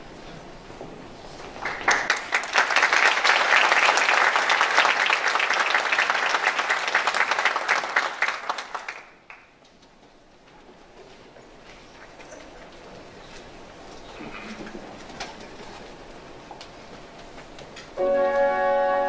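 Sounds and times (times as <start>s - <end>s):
audience applauding: 1.4s - 9.6s.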